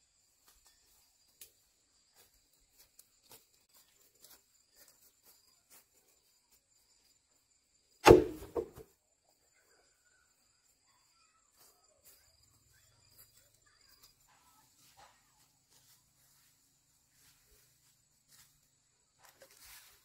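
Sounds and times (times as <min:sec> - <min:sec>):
loud knock: 0:08.1 - 0:08.8.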